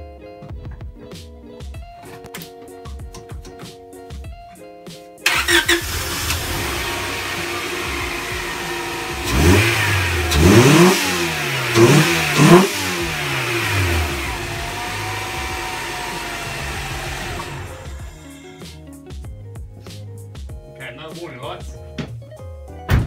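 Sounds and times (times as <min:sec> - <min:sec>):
car engine idling and revving: 0:05.3 - 0:18.5.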